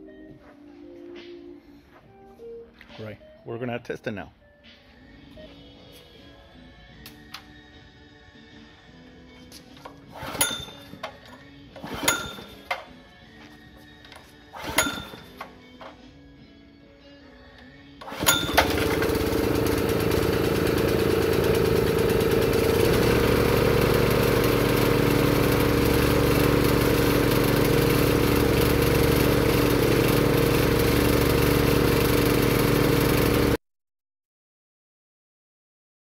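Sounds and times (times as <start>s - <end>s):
engine pull start: 9.8s - 12.9s, 14.5s - 16.0s, 18.0s - 33.5s
gas engine running: 18.0s - 33.6s.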